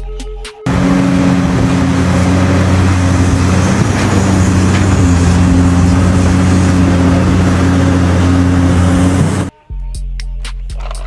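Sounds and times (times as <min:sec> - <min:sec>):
excavator diesel engine humming: 0:00.7 - 0:09.5.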